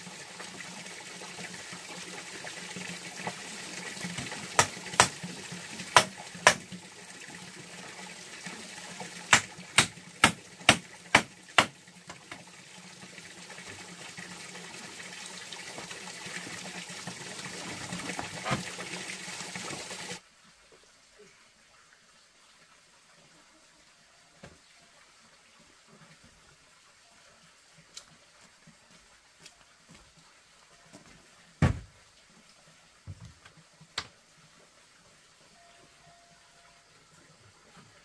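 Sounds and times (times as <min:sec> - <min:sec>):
running water: 0:00.0 - 0:38.0
sharp knocks: 0:04.6 - 0:05.2, 0:06.0 - 0:06.6, 0:09.3 - 0:11.7.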